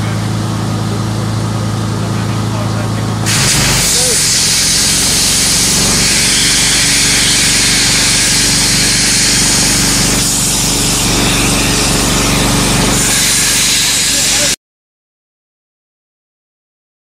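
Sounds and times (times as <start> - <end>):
low pulsing drone: 0.0 - 14.6
water jet hissing: 3.2 - 14.6.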